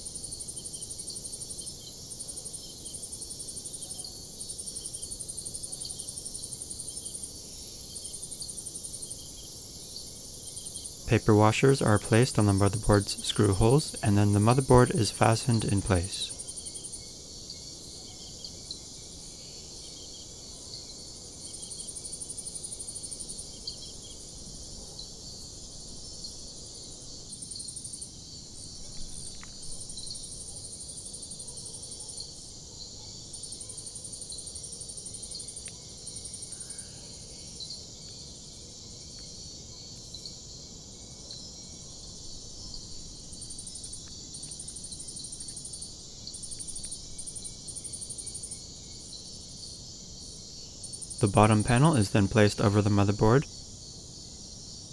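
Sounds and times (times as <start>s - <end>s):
steady high hiss: 6.2s - 16.4s, 42.2s - 53.7s.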